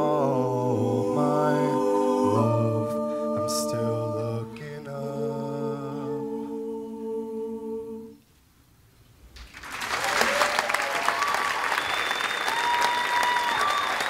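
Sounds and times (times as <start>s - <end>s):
a cappella group singing chord: 0.0s - 8.2s
audience applause: 9.4s - 14.0s
audience cheering: 9.5s - 14.0s
whistling: 10.8s - 14.0s.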